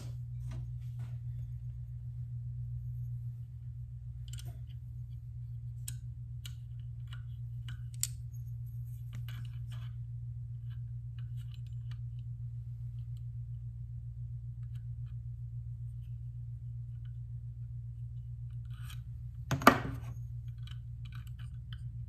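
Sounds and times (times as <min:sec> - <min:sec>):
steady low hum: 0:00.0 - 0:22.0
light metal clicks and taps: 0:04.2 - 0:04.8.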